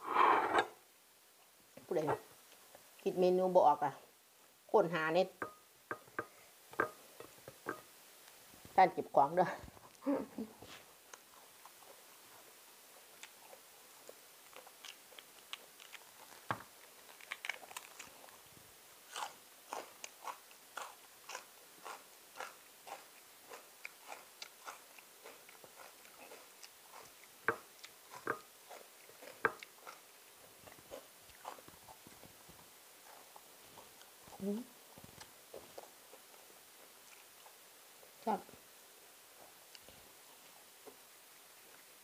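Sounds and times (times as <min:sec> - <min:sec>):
person chewing crunchy food: 0:13.0 - 0:18.4, 0:19.0 - 0:37.6.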